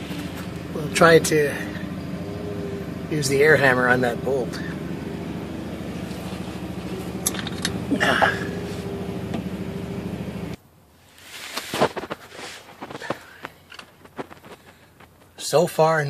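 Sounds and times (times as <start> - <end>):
air compressor running: 0.0 - 10.6.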